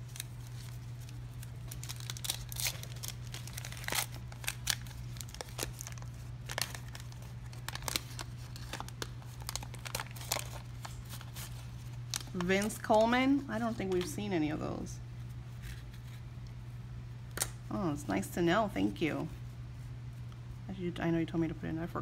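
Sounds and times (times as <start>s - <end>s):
cards and paper crinkling: 0.0s - 14.2s.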